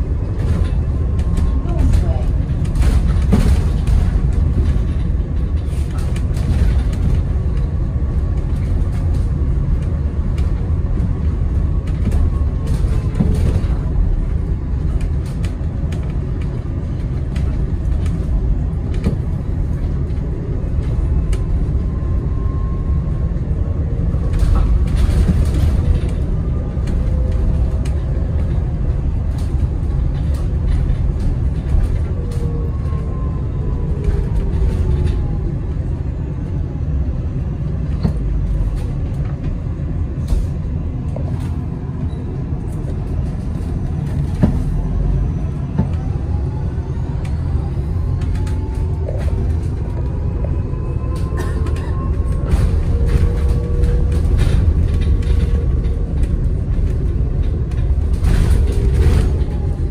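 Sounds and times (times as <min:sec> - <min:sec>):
rattles and knocks: 0:00.0 - 0:21.8, 0:48.2 - 0:59.9
road rumble inside bus: 0:00.0 - 0:59.9.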